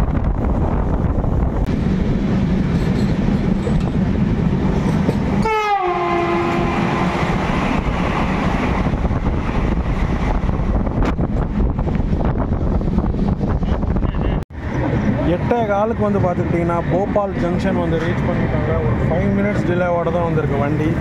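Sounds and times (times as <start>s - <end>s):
wind noise: 0.0s - 15.5s
train rumbling: 0.0s - 21.0s
train horn: 5.4s - 7.2s.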